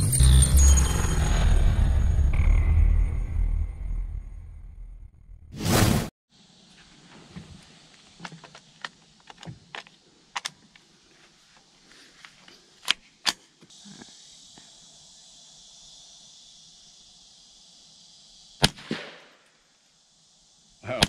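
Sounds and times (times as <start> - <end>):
steady high hiss: 6.3 - 21.0
rifle handling clicks and knocks: 7.9 - 10.9, 12.2 - 13.4.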